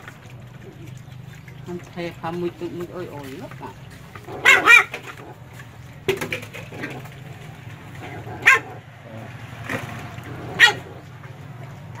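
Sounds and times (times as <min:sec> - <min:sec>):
puppies yelping and whining: 0:03.9 - 0:05.6.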